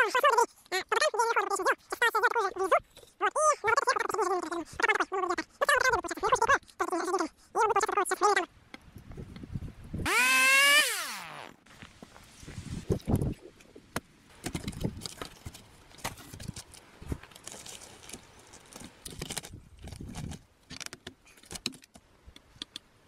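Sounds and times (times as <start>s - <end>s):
rustling: 14.3s - 21.9s.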